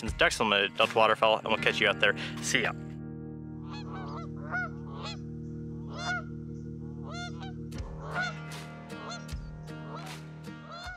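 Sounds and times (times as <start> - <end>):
sustained background music tones: 0.0 - 10.9
geese honking: 3.6 - 10.9.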